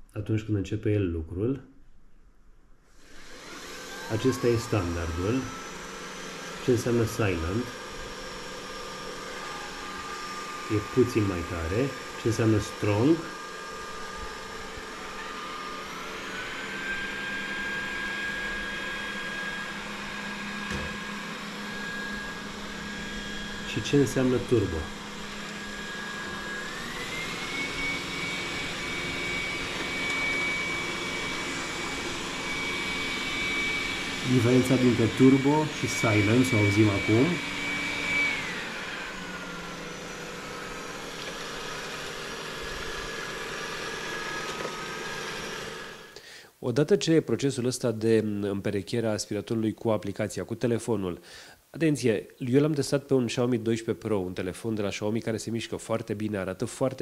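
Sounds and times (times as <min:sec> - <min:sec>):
robot vacuum fan whine: 0:02.9 - 0:46.2.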